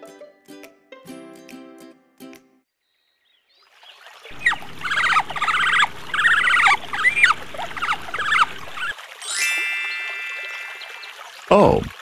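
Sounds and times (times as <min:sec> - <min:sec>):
otter squeaky chirps: 0:04.3 - 0:09.0.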